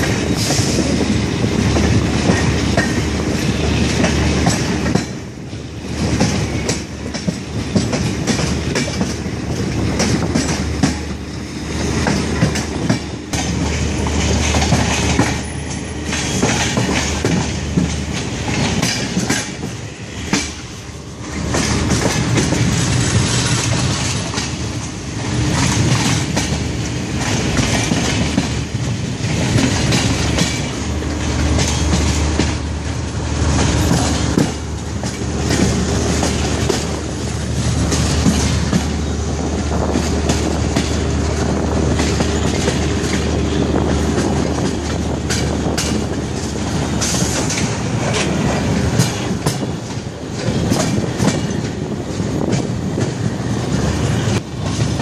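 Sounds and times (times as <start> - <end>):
train wheels clickety-clack: 0.0 - 55.0.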